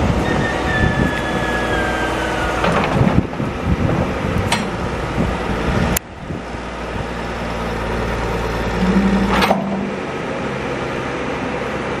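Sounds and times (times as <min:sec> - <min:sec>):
diesel engine running: 0:00.0 - 0:12.0
short stronger hum: 0:08.6 - 0:10.6.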